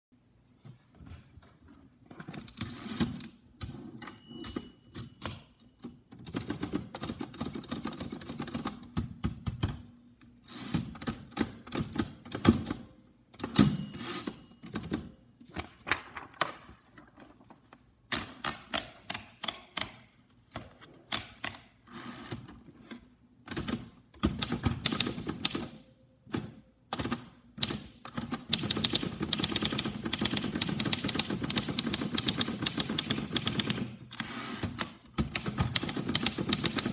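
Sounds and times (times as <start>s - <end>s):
typewriter bell ring: 4.0s - 5.8s, 13.4s - 15.3s
typewriter keys clacking: 27.0s - 33.9s, 35.2s - 36.9s.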